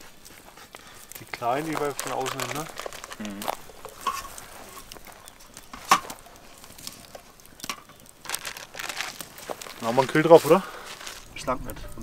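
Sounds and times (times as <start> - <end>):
foil rustling: 0.0 - 12.0.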